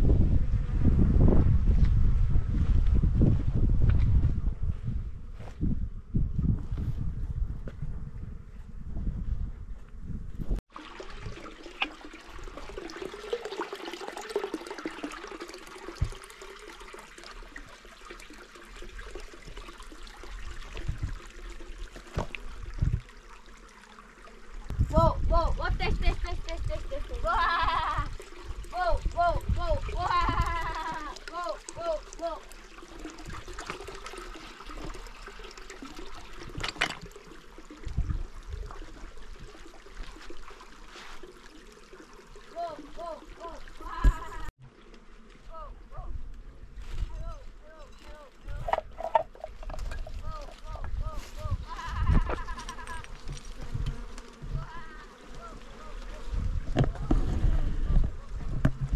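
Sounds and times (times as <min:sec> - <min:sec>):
water rushing: 0:10.7 - 0:45.9.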